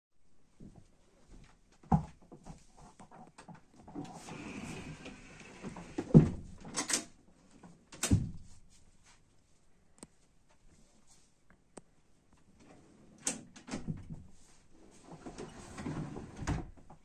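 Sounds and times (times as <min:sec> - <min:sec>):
sofa bed frame sliding: 0:04.0 - 0:06.5, 0:14.8 - 0:16.7.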